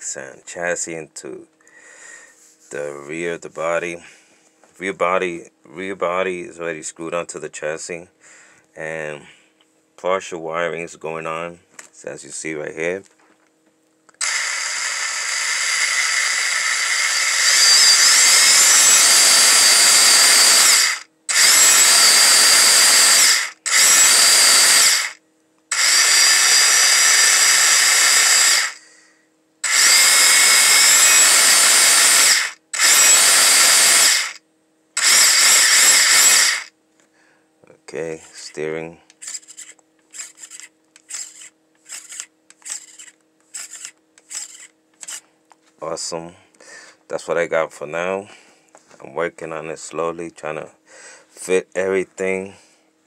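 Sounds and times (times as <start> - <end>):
electric motor and gears whining: 14.2 - 28.9, 29.6 - 34.4, 35.0 - 36.7, 38.4 - 45.2.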